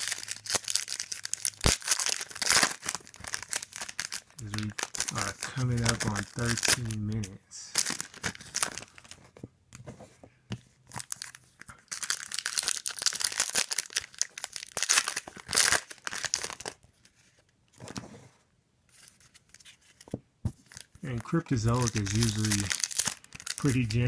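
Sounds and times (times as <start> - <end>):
wrappers tearing and crinkling: 0.0 - 9.2, 10.9 - 16.8, 20.6 - 24.0
cards shuffling: 0.0 - 18.2, 18.9 - 24.0.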